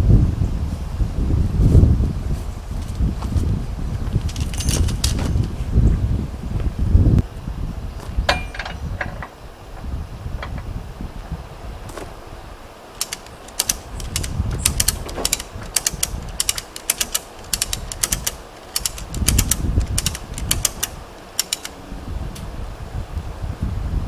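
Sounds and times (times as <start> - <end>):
wind rumble on microphone: 0.0 - 24.0
ratchet strap clicking: 4.2 - 5.5, 13.0 - 21.8.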